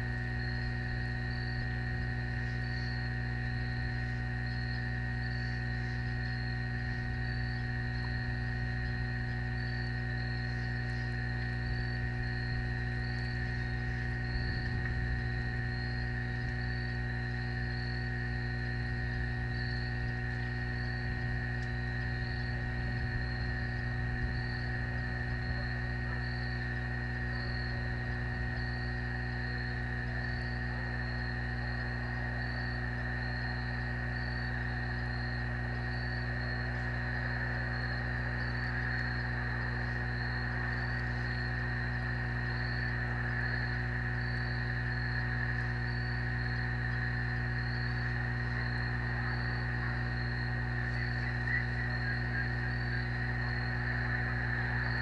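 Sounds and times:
electrical hum and buzz: 0.0s - 55.0s
faint high pulsing chirp: 0.0s - 55.0s.

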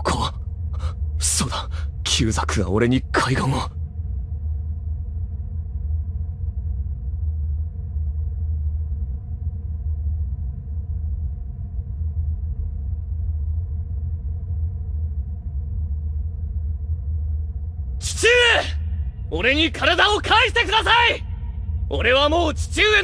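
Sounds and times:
low rumbling drone: 0.0s - 23.0s.

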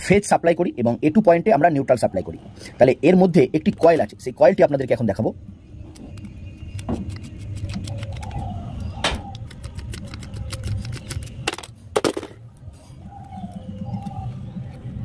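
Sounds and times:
sharp clicks: 5.9s - 11.7s.

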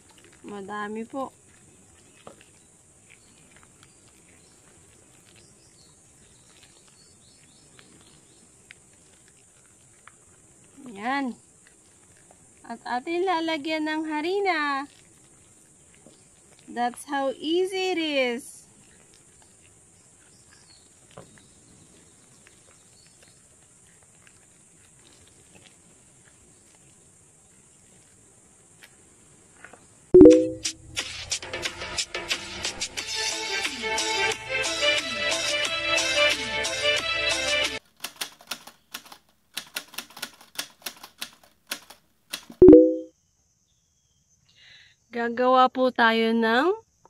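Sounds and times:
wet squishing of mash being kneaded: 0.0s - 29.1s
sharp click: 38.0s - 43.1s.

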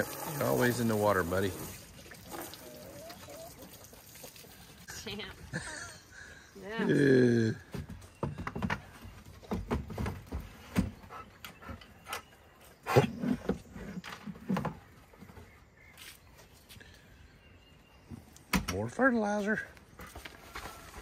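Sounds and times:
light knocks and thuds: 7.7s - 11.1s.

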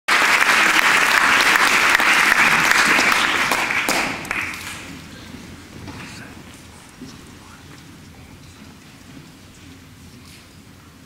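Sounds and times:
audience applauding: 0.1s - 6.2s.

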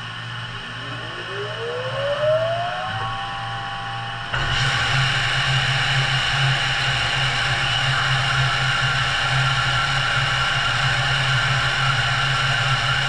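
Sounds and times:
grinder spindle whine: 0.0s - 9.6s.

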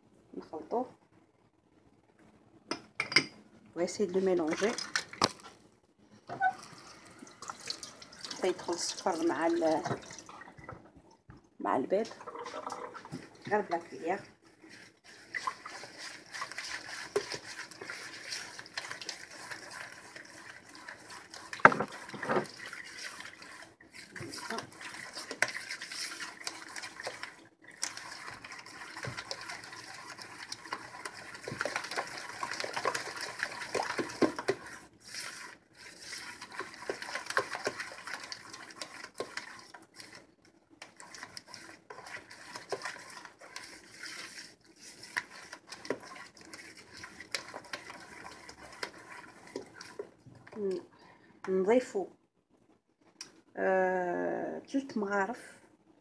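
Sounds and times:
spatula beating batter in bowl: 12.0s - 50.9s.

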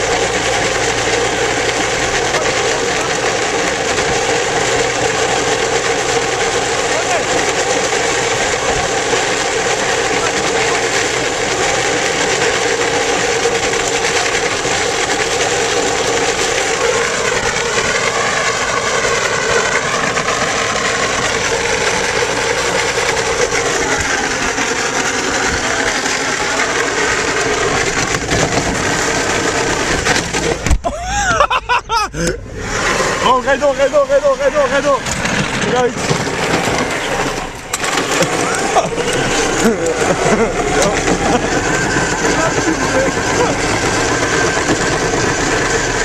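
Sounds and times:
plastic wheels rolling on asphalt: 0.0s - 30.8s, 32.7s - 46.0s
wavering high squeal: 36.8s - 46.0s.

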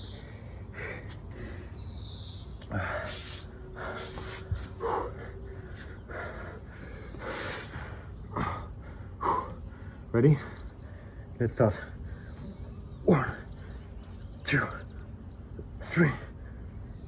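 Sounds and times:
man breathing hard: 0.0s - 2.1s, 2.8s - 10.1s.

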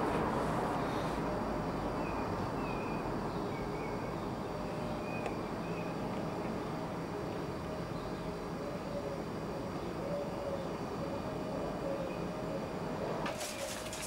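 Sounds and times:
outdoor background rumble: 0.0s - 14.0s.

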